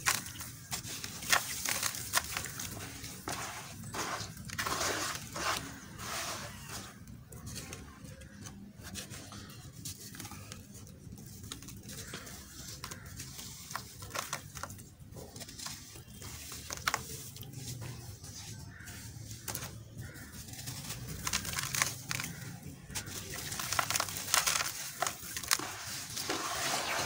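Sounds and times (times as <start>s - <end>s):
gritty crackles of dirt lumps: 0.0s - 27.0s.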